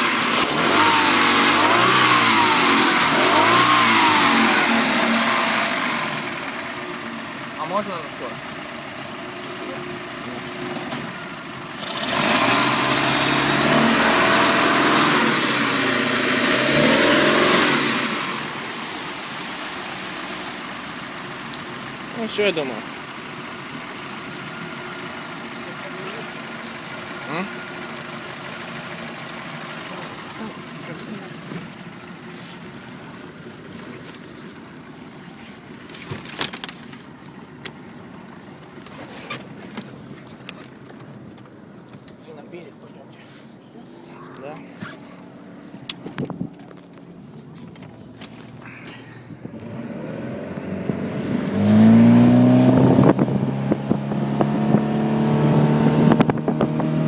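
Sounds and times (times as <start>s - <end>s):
boat engine rumbling: 0.0s - 57.0s
boat engine running: 48.3s - 57.0s.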